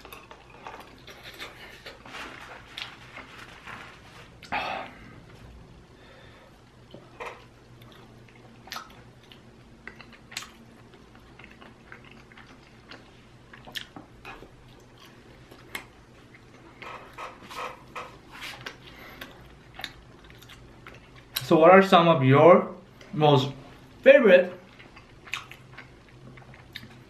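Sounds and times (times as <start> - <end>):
chewing crunchy food: 0.0 - 3.6, 6.9 - 16.9, 18.6 - 21.5, 24.6 - 27.0.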